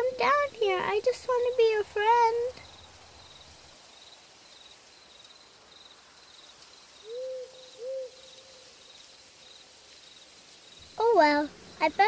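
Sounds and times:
crickets chirping: 0.0 - 12.0
owl hoots: 7.0 - 8.7.

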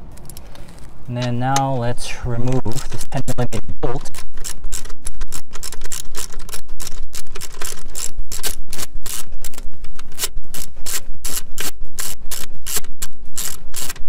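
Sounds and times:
ratchet clicking rapidly: 4.0 - 14.0.

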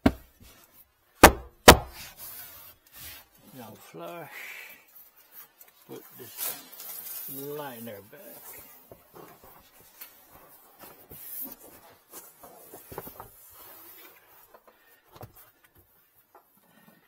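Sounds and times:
fabric panel rustling and scraping: 1.9 - 4.2, 5.0 - 17.0.

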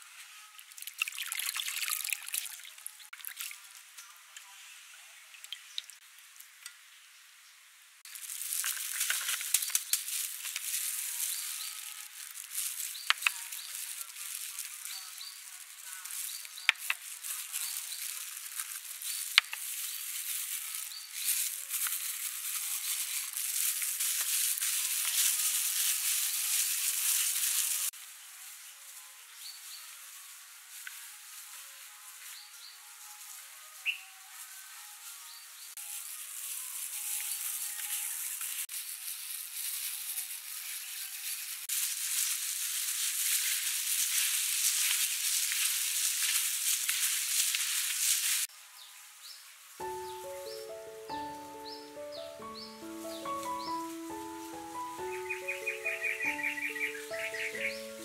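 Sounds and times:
sugar and salt pouring: 0.7 - 3.6, 8.1 - 28.0, 35.9 - 48.5
plastic gloves rustling: 8.0 - 48.6, 49.2 - 58.0.

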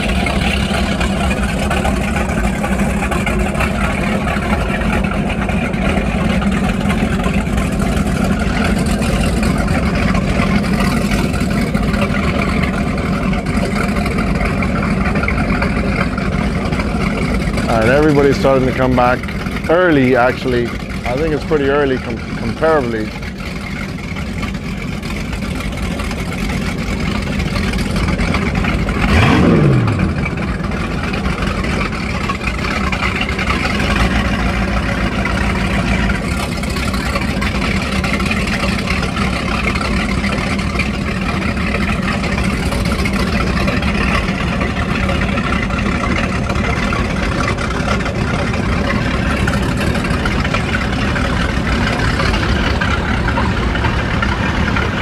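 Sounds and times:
motorboat engines idling: 0.0 - 55.0
whine sliding down in pitch: 28.8 - 32.0.

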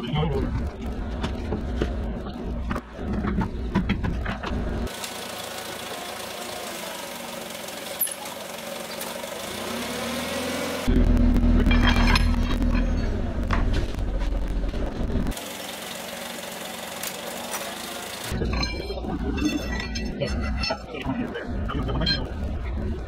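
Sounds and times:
forklift engine running: 4.5 - 19.0
deep rumble: 10.9 - 15.3.

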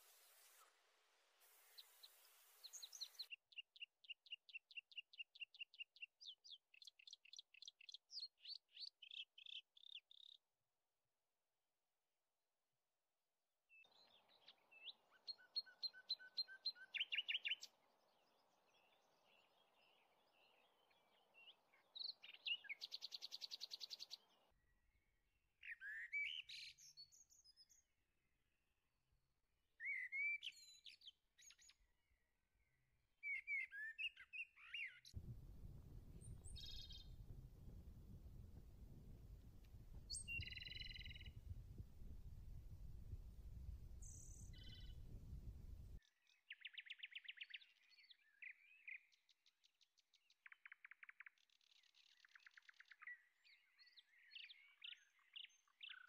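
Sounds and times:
small birds chirping: 1.5 - 10.4, 13.8 - 24.4, 33.2 - 49.2
low rumbling noise: 35.2 - 46.0.

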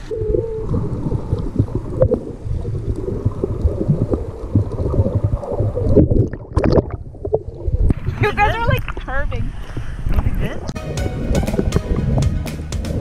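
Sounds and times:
underwater rumble of moving water: 0.0 - 12.3
small underwater clicks: 0.6 - 8.0.

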